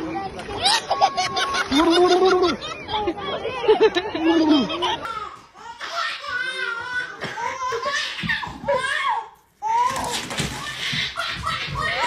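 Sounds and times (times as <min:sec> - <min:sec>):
baby laughing: 0:00.6 - 0:12.0
adult laughing: 0:00.7 - 0:05.1.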